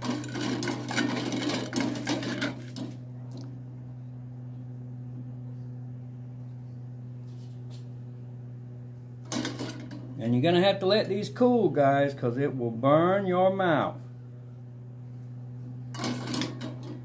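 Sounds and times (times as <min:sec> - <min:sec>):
steady low hum: 0:00.0 - 0:17.0
metal spoon scraping a pot: 0:16.0 - 0:17.0.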